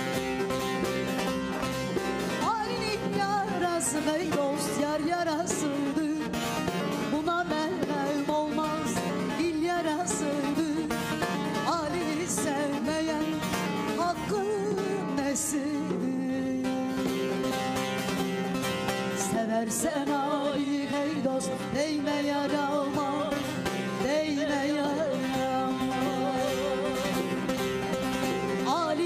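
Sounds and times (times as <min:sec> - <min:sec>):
folk song with lute and keyboard: 0:00.0 - 0:29.0
woman singing ornamented phrases: 0:02.3 - 0:17.5, 0:19.1 - 0:29.0.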